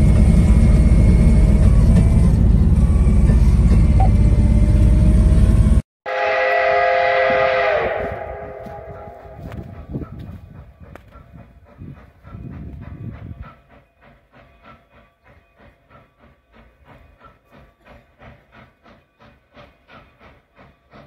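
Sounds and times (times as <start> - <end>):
wheels rumbling on track: 0.0 - 5.8, 6.6 - 21.0
rail speeder engine rumbling: 0.0 - 21.0
steam locomotive whistle blast: 6.1 - 9.7.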